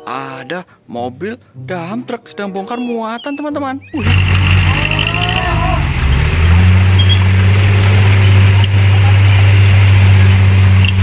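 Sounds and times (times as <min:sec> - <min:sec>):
diesel truck engine running: 0:04.0 - 0:11.0.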